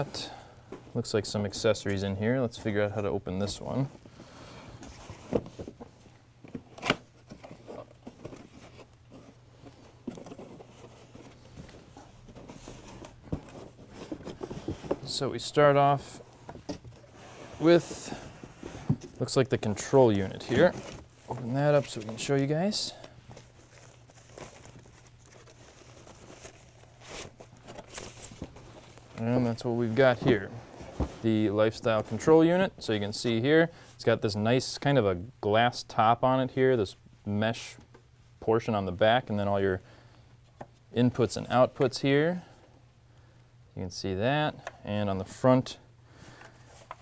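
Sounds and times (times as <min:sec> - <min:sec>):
cardboard rustling and scraping: 0:04.8 - 0:32.4
plastic wrapping crinkling: 0:19.8 - 0:29.8.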